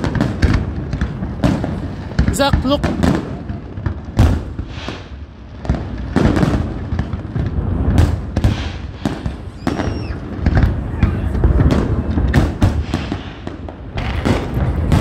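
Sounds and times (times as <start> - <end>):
fireworks bangs and booms: 0.0 - 15.0.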